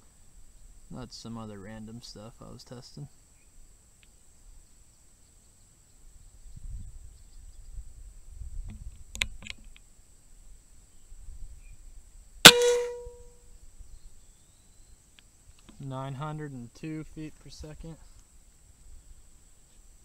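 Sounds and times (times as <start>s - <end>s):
air rifle shot: 12.5s - 13.2s.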